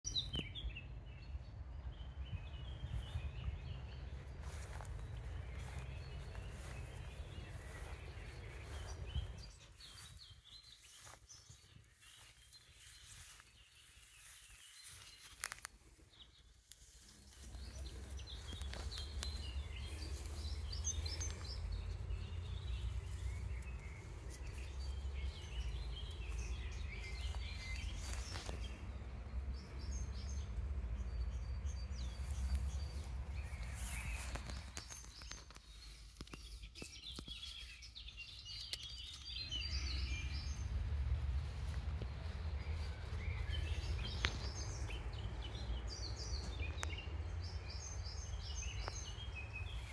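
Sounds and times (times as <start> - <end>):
low rumble on microphone: 0.1 - 14.4, 17.2 - 36.0, 39.3 - 49.9
songbirds chirping and singing: 0.1 - 49.9.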